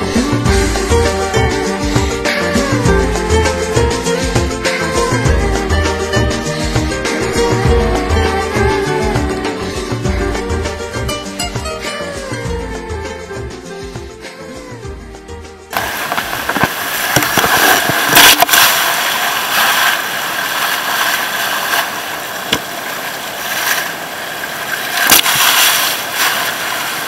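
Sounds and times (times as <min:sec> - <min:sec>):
song playing: 0:00.0 - 0:16.7
water rushing past: 0:15.7 - 0:27.0
sharp knocks: 0:22.5 - 0:22.7.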